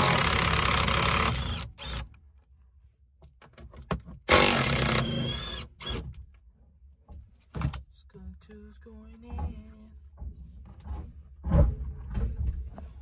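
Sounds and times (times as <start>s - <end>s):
cordless power tool running: 0.0s - 2.0s, 4.3s - 5.6s.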